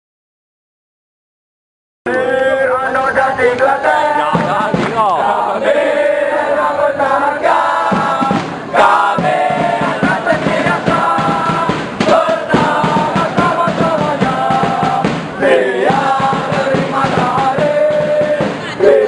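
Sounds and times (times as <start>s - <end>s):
crowd singing a chant: 2.1s - 19.0s
steady drum beat: 3.9s - 5.7s, 7.1s - 19.0s.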